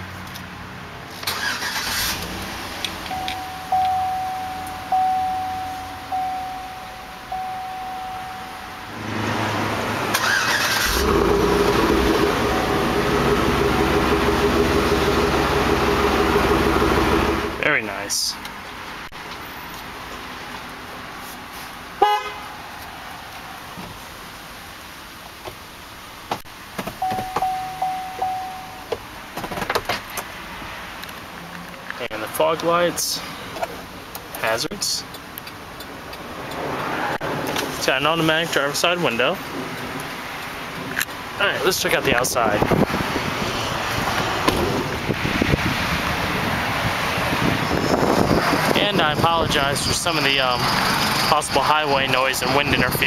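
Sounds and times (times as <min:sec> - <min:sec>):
dashboard warning chime dinging: 0:03.0 - 0:09.0, 0:27.0 - 0:29.1
steady electronic beep: 0:03.1 - 0:09.0, 0:27.0 - 0:28.9
car exhaust running steadily: 0:11.0 - 0:17.6
regular ticks: 0:35.0 - 0:36.7.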